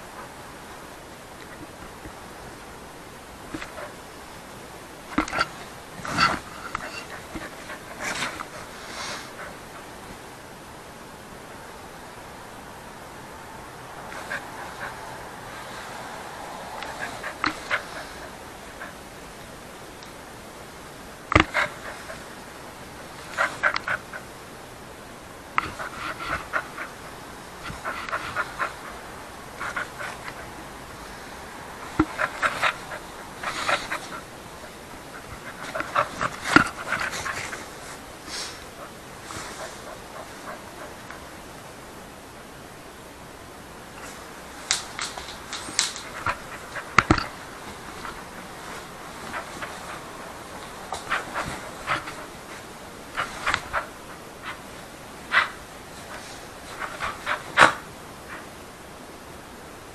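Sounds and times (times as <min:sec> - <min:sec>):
dog breathing: 0:03.5 - 0:04.2, 0:05.1 - 0:10.1, 0:14.1 - 0:19.5, 0:21.4 - 0:24.4, 0:25.6 - 0:41.4, 0:45.0 - 0:58.5
dog chewing rope toy: 0:21.3 - 0:22.3, 0:31.8 - 0:37.7, 0:44.8 - 0:57.8.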